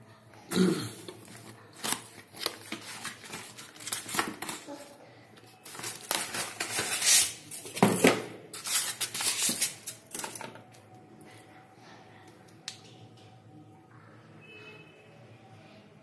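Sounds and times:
cardboard and foam rustling: 1.2 - 9.9.

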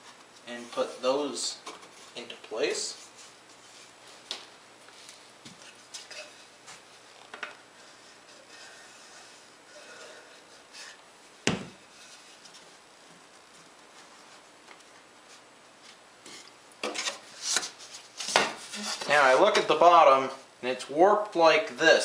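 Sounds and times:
knocks on wooden workbench: 11.5 - 11.8.

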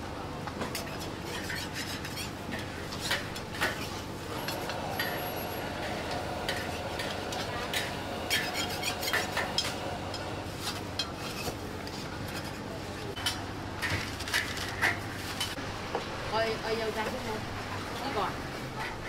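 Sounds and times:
steady background noise: 0.0 - 19.0
metal spatula scraping pans: 0.7 - 11.6.

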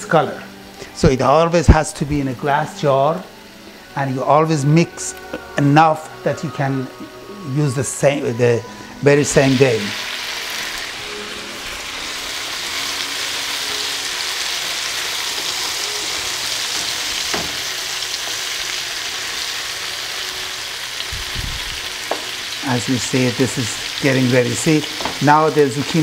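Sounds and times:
zucchini sizzling in oil: 8.8 - 26.0.

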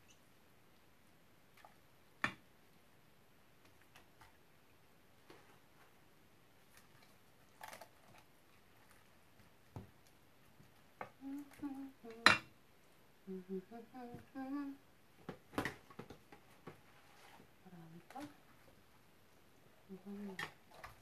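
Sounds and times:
person humming softly: 11.0 - 12.4, 13.2 - 14.8, 19.9 - 20.4.

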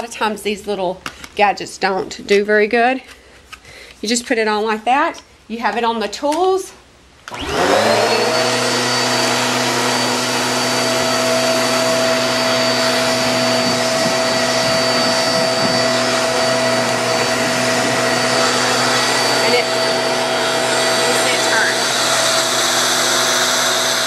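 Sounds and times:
vacuum cleaner motor whine: 7.3 - 24.0.

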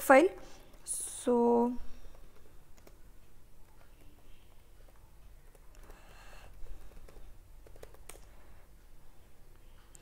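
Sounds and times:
keyboard keystrokes: 7.0 - 8.3.

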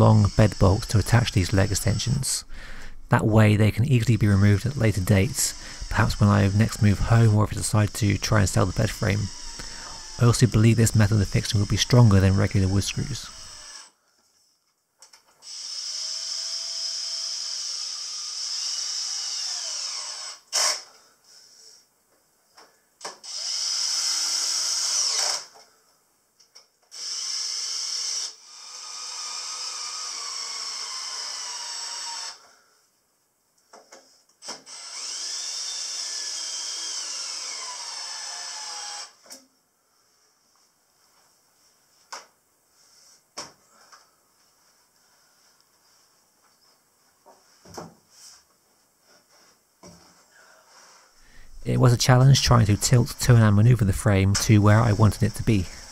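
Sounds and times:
cordless drill driving bolts into wood: 8.6 - 10.4, 13.2 - 13.9, 15.4 - 20.9, 23.0 - 25.6, 26.9 - 32.4, 34.4 - 39.4.

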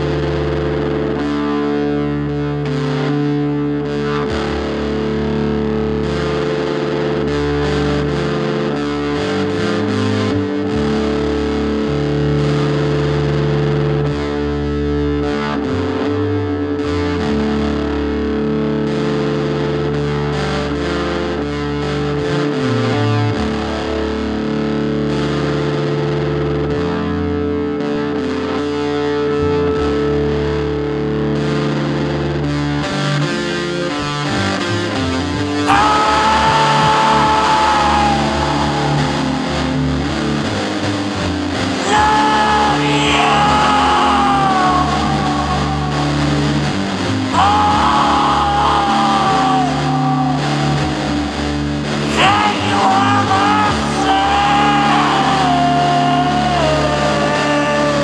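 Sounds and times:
distorted electric guitar: 0.0 - 58.0
bass notes: 34.7 - 58.0.

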